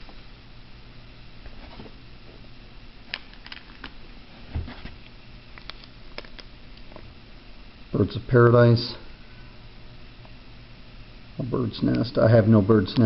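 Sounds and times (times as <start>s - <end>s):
low steady hum: 0.0s - 13.0s
plastic bags crinkling: 3.1s - 4.0s, 5.5s - 7.0s.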